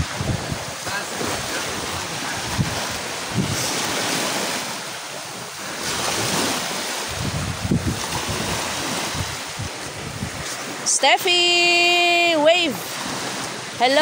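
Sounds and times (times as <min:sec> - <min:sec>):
wind buffeting microphone: 0:00.0 - 0:10.9
small waves lapping: 0:00.0 - 0:14.0.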